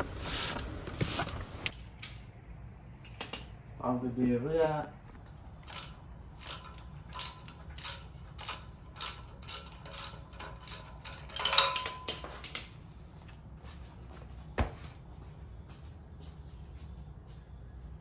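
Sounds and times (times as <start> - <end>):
metallic clatter and ring: 5.7 - 12.8.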